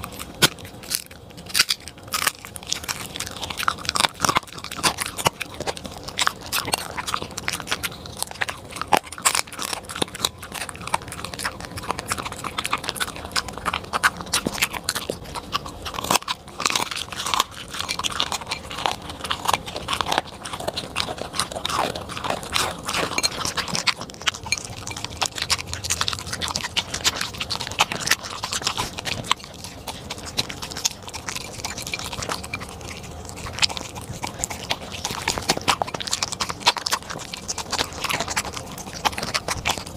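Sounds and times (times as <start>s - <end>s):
dog chewing and crunching food: 0.0s - 39.9s.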